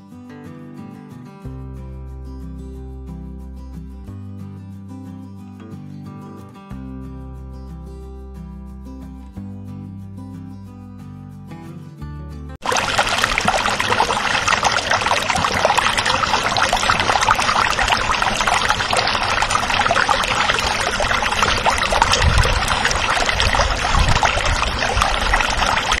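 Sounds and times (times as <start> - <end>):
heavy rain: 12.6 - 26.0.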